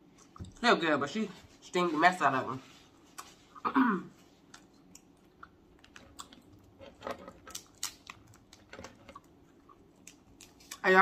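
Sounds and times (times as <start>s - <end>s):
crab shells cracking: 4.9s - 10.8s.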